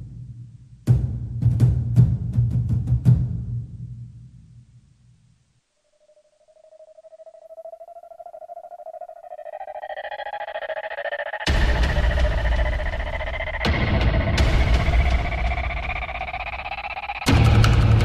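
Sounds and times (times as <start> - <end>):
warbling electronic tone rising: 5.8 - 17.3
drum-heavy music: 11.5 - 18.0.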